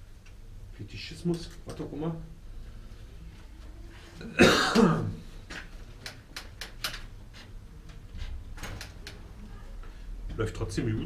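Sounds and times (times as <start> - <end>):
man coughing and clearing throat: 4.2 - 5.2.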